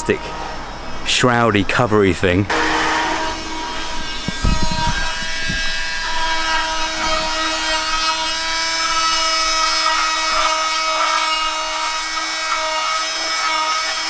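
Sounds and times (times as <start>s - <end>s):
power tool whining: 2.5s - 14.0s
low bumps: 2.7s - 9.8s.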